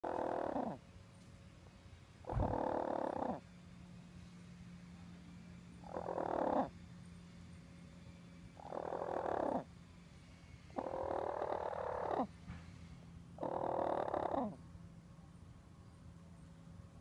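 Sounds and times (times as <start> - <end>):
hen calling: 0.0 - 0.8, 2.3 - 3.4, 5.8 - 6.8, 8.6 - 9.7, 10.8 - 12.3, 13.4 - 14.6.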